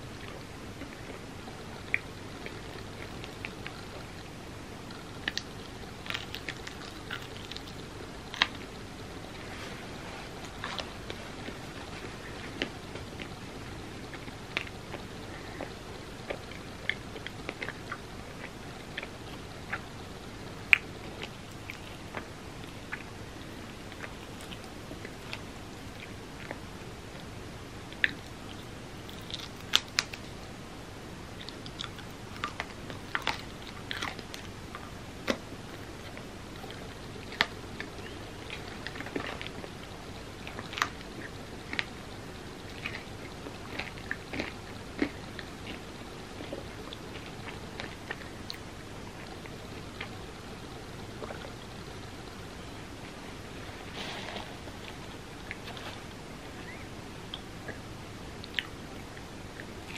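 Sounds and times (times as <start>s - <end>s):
person chewing: 42.6s - 50.2s.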